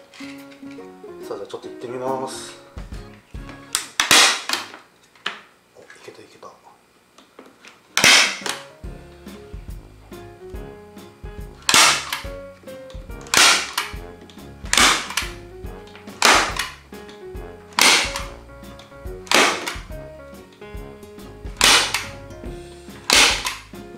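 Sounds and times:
staple gun firing: 0:03.8 - 0:04.7, 0:08.0 - 0:08.7, 0:11.6 - 0:12.3, 0:13.2 - 0:14.0, 0:14.7 - 0:15.4, 0:16.1 - 0:16.8, 0:17.8 - 0:18.4, 0:19.3 - 0:19.9, 0:21.6 - 0:22.2, 0:23.0 - 0:23.7.

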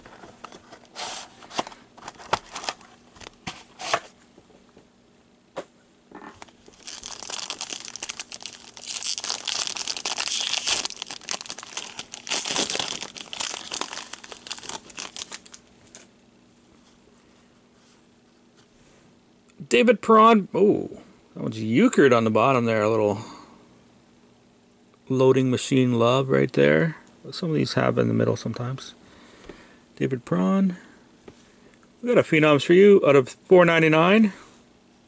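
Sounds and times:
plastic wrap crinkling and tearing: 0:06.4 - 0:16.1.

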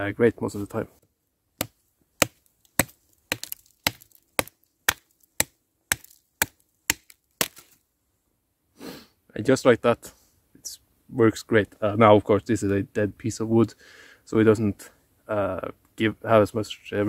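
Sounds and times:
knife chopping wood: 0:01.6 - 0:07.8.

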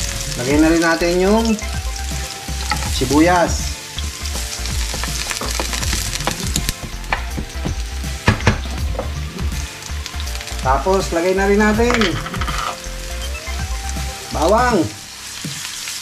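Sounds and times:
onion sizzling in oil: 0:00.0 - 0:16.0
plastic spoon scraping pan: 0:04.6 - 0:07.7.

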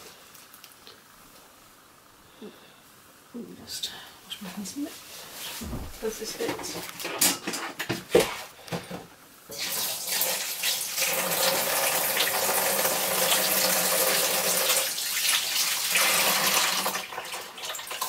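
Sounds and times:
tap water running into sink: 0:09.5 - 0:18.0.

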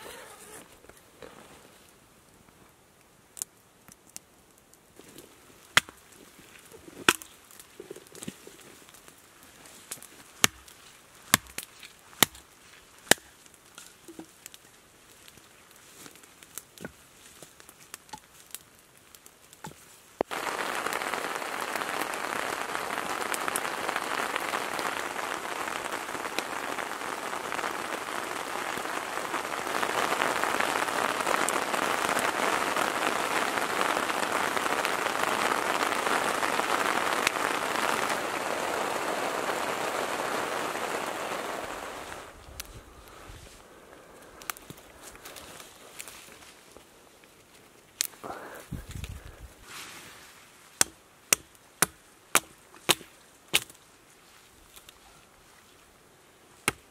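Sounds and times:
heavy rain downpour: 0:20.2 - 0:42.7.

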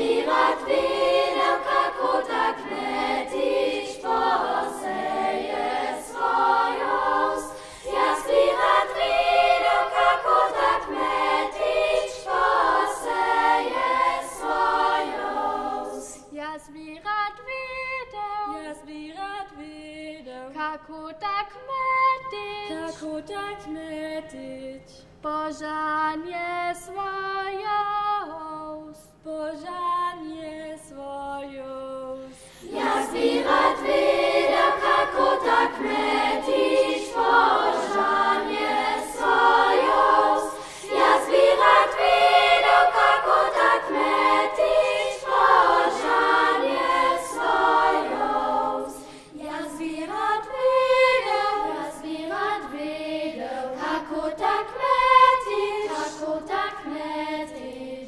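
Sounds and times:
children's choir singing: 0:00.0 - 0:16.3, 0:32.6 - 0:58.0.

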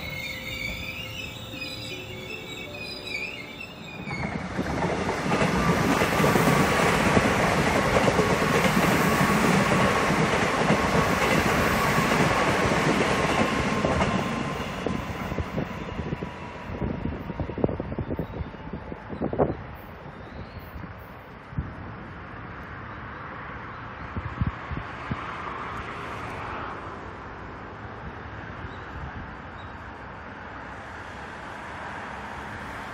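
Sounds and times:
train wheels rumbling on rail: 0:00.0 - 0:22.9.

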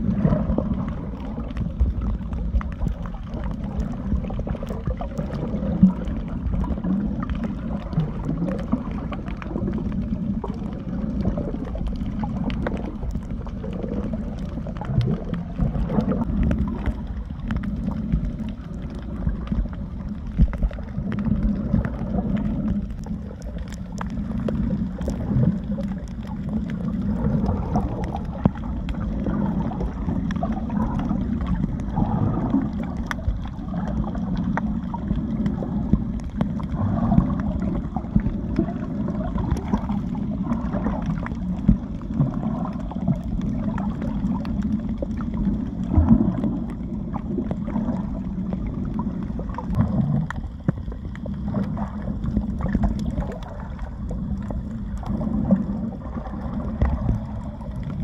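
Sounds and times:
water sloshing and gurgling underwater: 0:00.0 - 0:58.0
faint clicks: 0:11.6 - 0:55.6.

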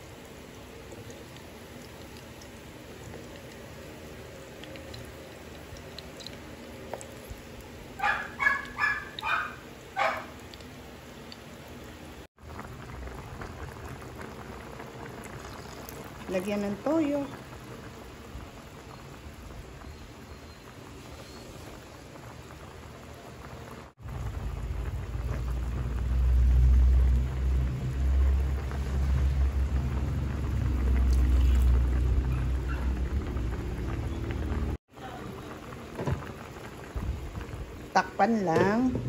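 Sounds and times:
broth simmering and bubbling: 0:00.0 - 0:39.0
low rumble: 0:24.0 - 0:34.8.

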